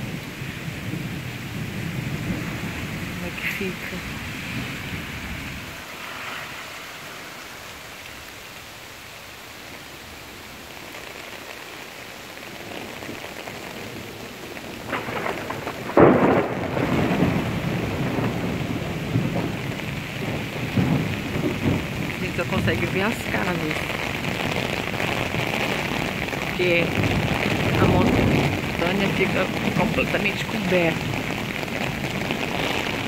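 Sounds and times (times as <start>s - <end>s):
thunder rumbling: 0.0s - 7.4s, 12.4s - 33.0s
heavy rain on an umbrella: 0.0s - 33.0s
thunder crack: 14.6s - 33.0s.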